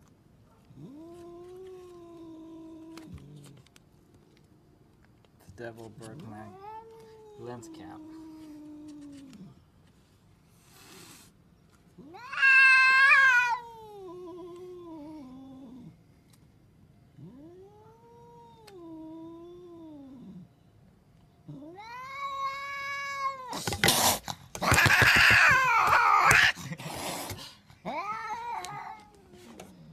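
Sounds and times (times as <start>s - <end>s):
cat yowling: 12.0s - 15.9s, 17.2s - 20.5s, 21.5s - 23.7s, 24.6s - 26.6s, 27.8s - 29.6s.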